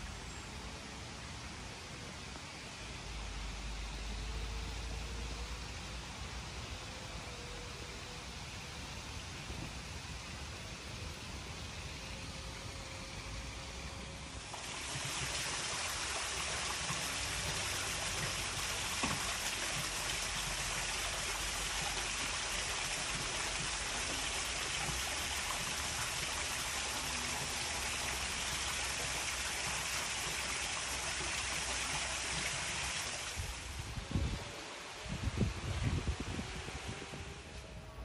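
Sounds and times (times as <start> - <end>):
waterfall splashing into pool: 14.4 - 33.7.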